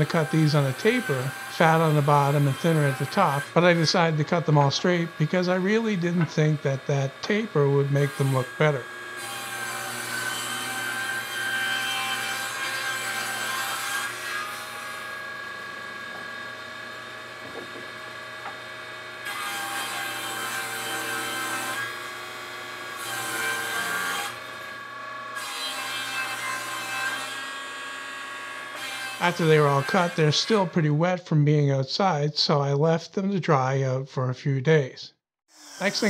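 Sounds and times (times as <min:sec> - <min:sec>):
saw motor hum: 0:00.0 - 0:25.4, 0:35.5 - 0:36.0
table saw cutting wood: 0:00.0 - 0:31.0, 0:35.5 - 0:36.0.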